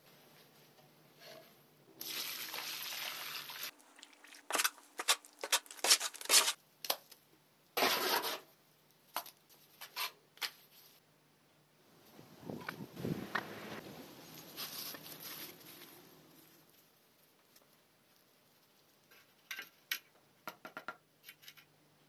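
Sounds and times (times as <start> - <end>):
dry sand pouring into metal tub: 2.0 - 3.7
trowel scraping mortar on concrete: 4.4 - 6.6, 7.8 - 8.5.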